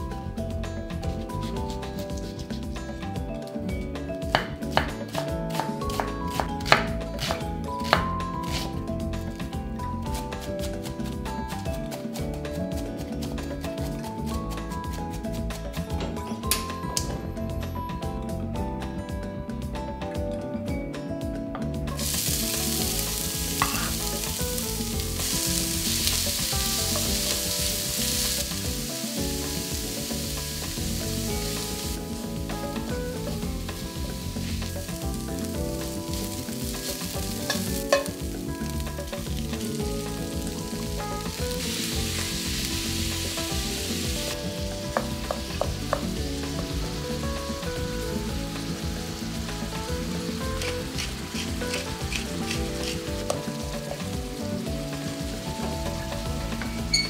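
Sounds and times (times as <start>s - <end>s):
utensil knocking against pan: 4.3s - 8.6s, 22.1s - 28.6s, 29.6s - 39.7s, 40.3s - 47.1s, 50.5s - 54.1s
meat sizzling in a frying pan: 21.9s - 57.0s.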